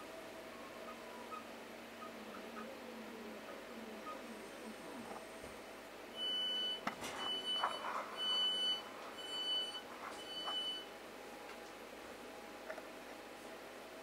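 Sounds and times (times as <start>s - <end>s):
train door warning beeps: 6.2s - 10.9s.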